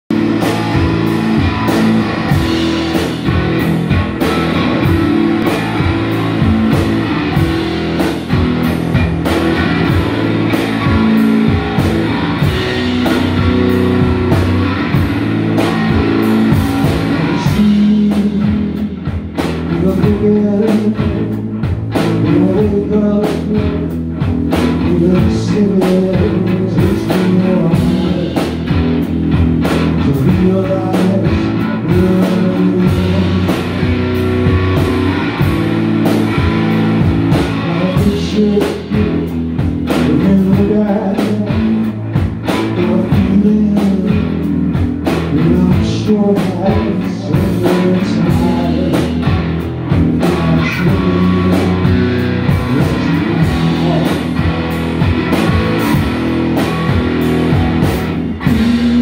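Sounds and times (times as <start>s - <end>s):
drum kit playing: 0.0s - 59.0s
electric guitar: 0.0s - 59.0s
man singing: 16.4s - 24.0s, 24.6s - 28.8s, 29.9s - 33.9s, 37.3s - 54.6s, 58.3s - 59.0s.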